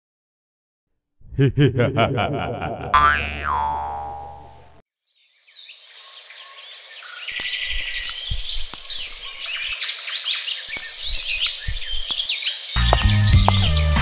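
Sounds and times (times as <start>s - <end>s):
cartoon sound effect: 2.9s - 4.7s
birds chirping: 5.2s - 14.0s
soft low thuds: 11.1s - 12.2s.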